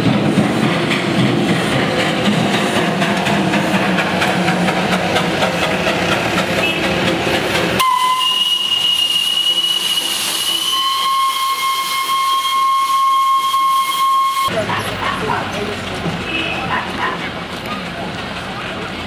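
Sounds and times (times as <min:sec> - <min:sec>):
steam locomotive chuffing: 0:00.0 - 0:19.0
shrill steam whistle: 0:07.8 - 0:14.5
steam hissing: 0:07.8 - 0:14.5.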